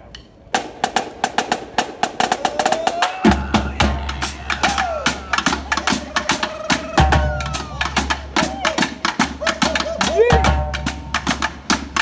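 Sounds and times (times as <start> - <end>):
snare and tenor drums: 0.5 - 12.0.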